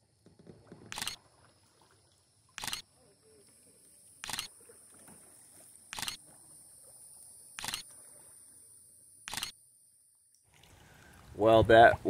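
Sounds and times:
high insect buzz: 2.4s - 10.3s
camera shutter clicks: 2.6s - 2.8s, 4.2s - 4.5s, 6.0s - 6.2s, 7.6s - 7.8s, 9.3s - 9.6s.

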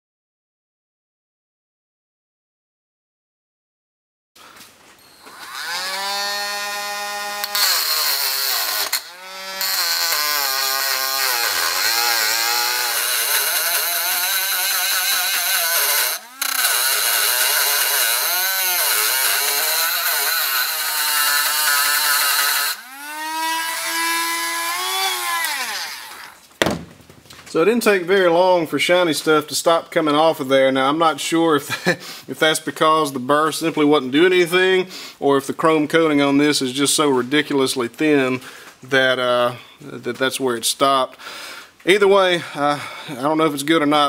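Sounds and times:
rotary tool grinding metal: 5.0s - 26.4s.

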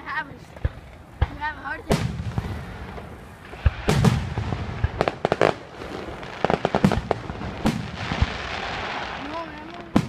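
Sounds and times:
fireworks bursting with sharp bangs: 0.0s - 10.0s
fireworks hiss: 0.6s - 10.0s.

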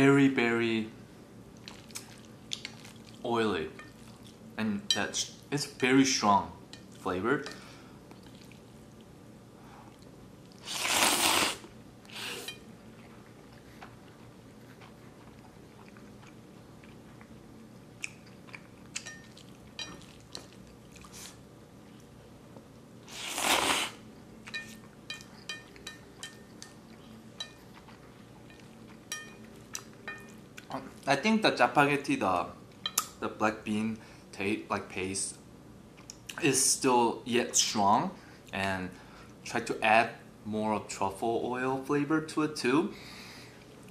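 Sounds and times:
loud slurping of noodles: 10.6s - 12.5s, 23.1s - 24.0s.

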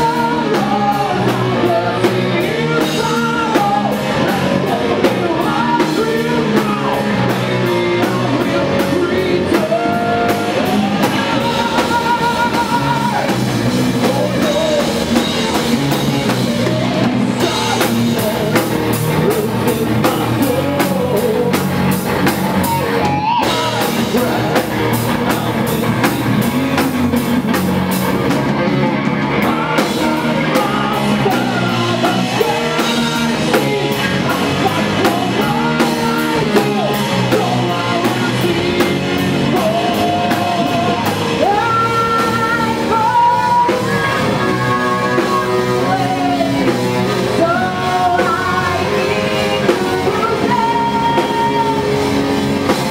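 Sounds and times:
person singing: 0.0s - 27.9s, 29.0s - 52.9s
bass guitar: 0.0s - 52.9s
drum kit: 0.0s - 52.9s
electric guitar: 0.0s - 52.9s.

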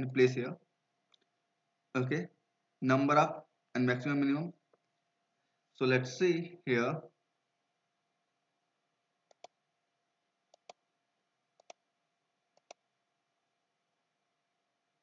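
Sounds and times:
faint mouse clicks: 9.3s - 9.6s, 10.5s - 10.8s, 11.6s - 11.8s, 12.5s - 12.9s.

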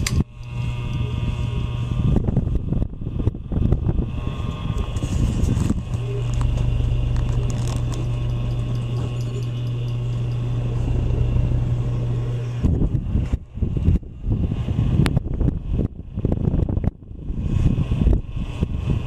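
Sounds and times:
ceiling fan air rumble: 0.0s - 19.0s
fan motor hum: 0.0s - 19.0s.

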